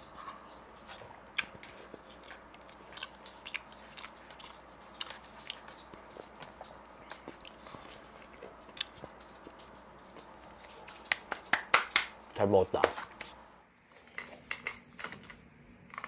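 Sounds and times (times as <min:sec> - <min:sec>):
person chewing food: 0:00.0 - 0:11.5.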